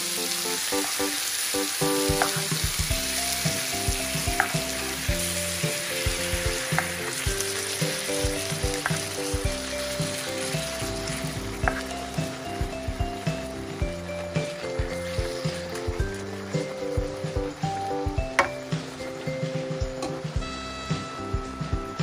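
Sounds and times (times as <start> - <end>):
beef sizzling in a pan: 0.0 - 22.0
utensil clicking against pan: 4.3 - 4.7, 6.6 - 7.9, 8.6 - 9.2.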